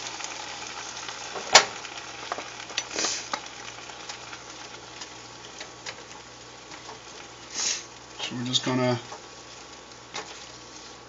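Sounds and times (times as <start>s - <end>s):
food sizzling in a frying pan: 0.0s - 11.0s
stirring clicks and scrapes: 2.3s - 8.0s, 9.0s - 11.0s.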